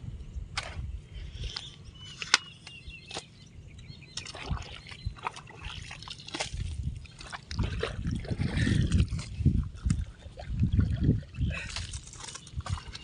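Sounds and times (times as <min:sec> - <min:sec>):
water sloshing and splashing: 0:04.1 - 0:13.0.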